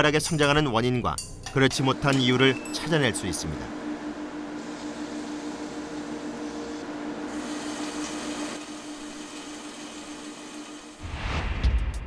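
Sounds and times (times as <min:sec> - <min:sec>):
lab equipment motors humming: 0:01.7 - 0:11.0.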